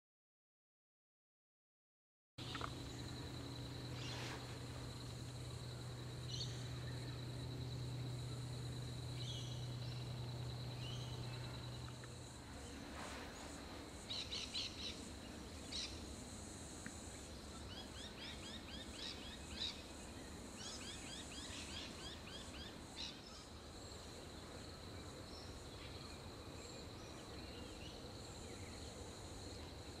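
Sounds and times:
small birds chirping: 2.4s - 12.8s
low hum: 2.4s - 16.0s
high-pitched insect trill: 2.4s - 30.0s.

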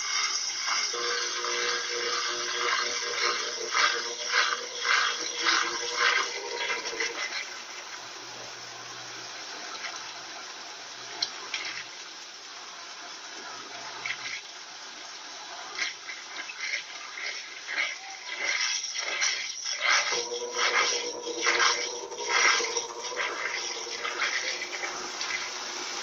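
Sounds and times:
water draining from spinning tub: 0.0s - 26.0s.

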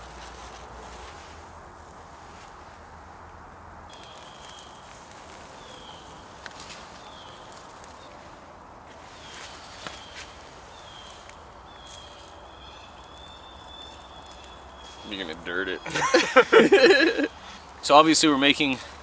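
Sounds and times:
sausages sizzling on a grill: 3.9s - 6.4s.

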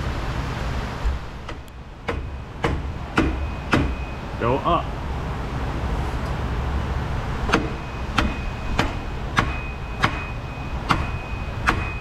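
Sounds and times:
rubber mallet striking metal: 1.5s - 4.0s, 7.5s - 12.0s.

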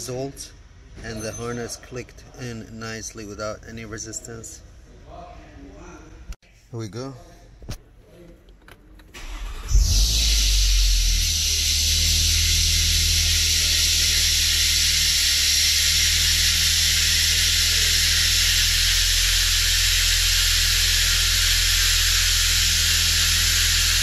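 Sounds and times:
car engine idling: 9.1s - 24.0s.

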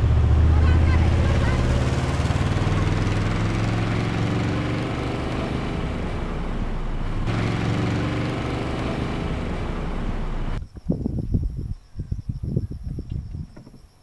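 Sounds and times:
vehicle engines droning: 0.0s - 10.6s.

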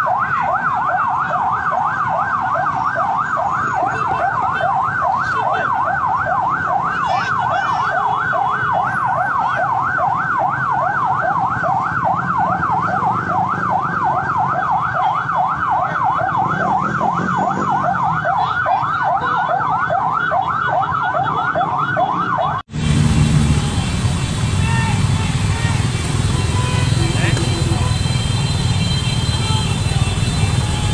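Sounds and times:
electronic siren yelping: 0.0s - 22.7s
motorcycles running: 0.0s - 30.9s.

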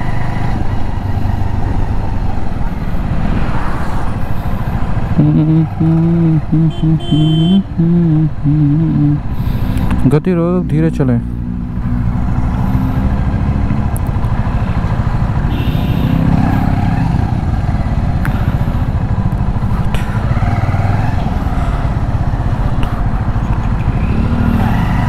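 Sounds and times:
motorcycle engine running: 4.6s - 9.5s, 12.6s - 25.0s.

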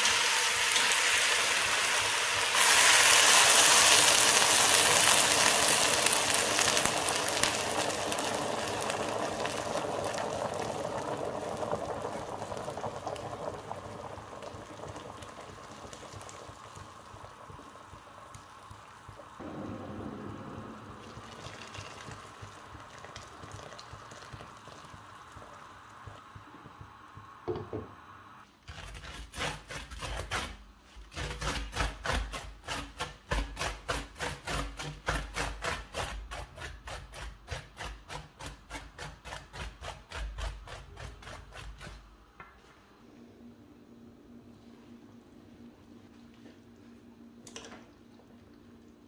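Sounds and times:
pot boiling with bubbling hiss: 0.0s - 49.0s
chopper blade striking metal tray: 19.4s - 21.9s.

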